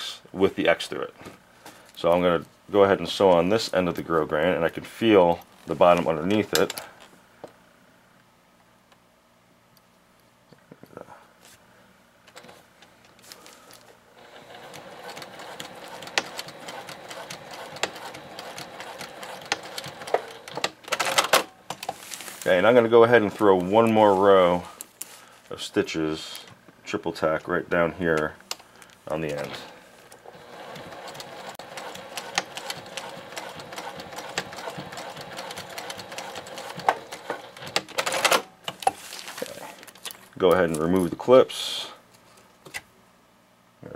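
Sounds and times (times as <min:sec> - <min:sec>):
sewing machine stitching: 0:14.2 - 0:21.4, 0:30.2 - 0:38.5.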